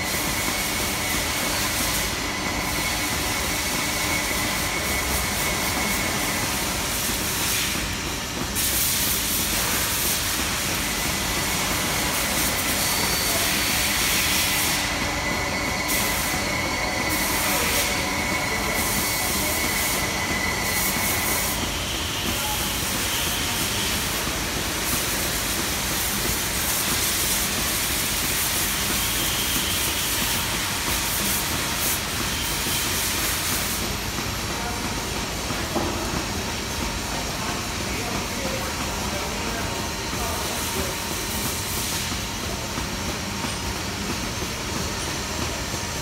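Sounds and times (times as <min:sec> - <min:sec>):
workshop machinery hiss: 0:00.0 - 0:46.0.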